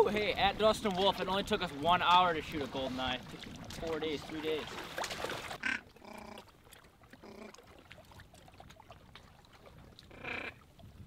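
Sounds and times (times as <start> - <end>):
buzzy duck-like calls: 5.6 - 6.4, 10.1 - 10.6.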